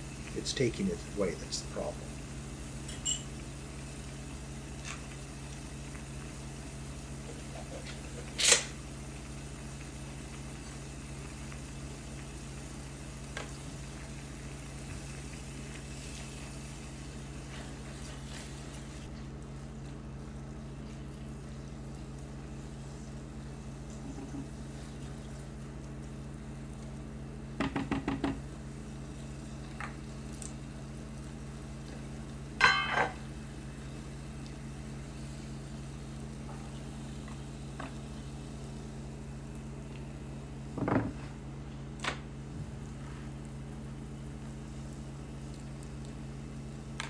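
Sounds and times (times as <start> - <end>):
steady low hum: 0.0 - 27.6.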